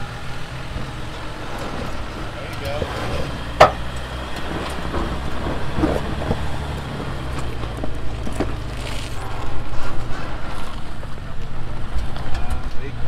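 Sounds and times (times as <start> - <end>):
vehicle engine running: 0.0 - 13.0
sharp knocks: 3.6 - 3.9.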